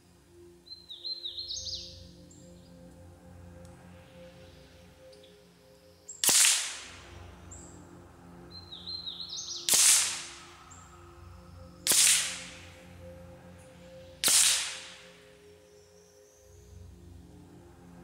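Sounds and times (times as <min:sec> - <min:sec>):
bird chirping: 0:00.6 - 0:02.9, 0:07.4 - 0:09.7.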